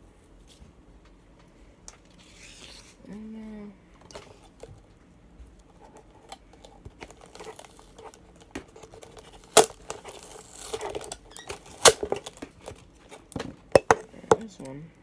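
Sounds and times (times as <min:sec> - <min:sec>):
plastic bottle and tape crinkling: 0:05.6 - 0:14.6.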